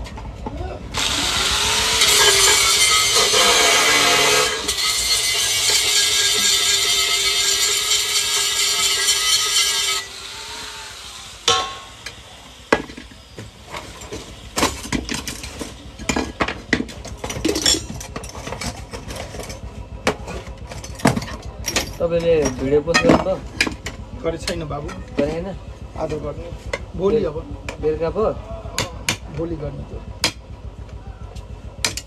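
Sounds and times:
angle grinder grinding metal: 0.9s - 16.3s
metal clinks and knocks: 13.8s - 25.3s.

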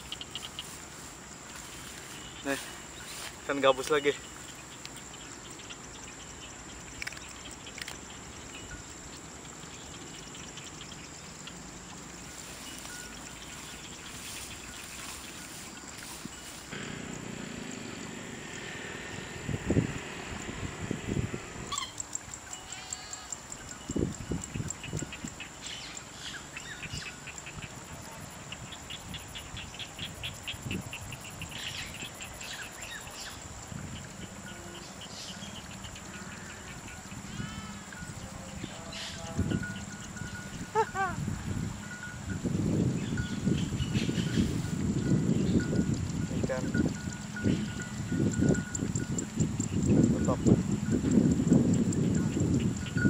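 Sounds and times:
steady hiss: 0.0s - 5.2s, 8.3s - 22.6s
insects chirring: 0.0s - 53.0s
bird chirps: 12.4s - 27.7s.

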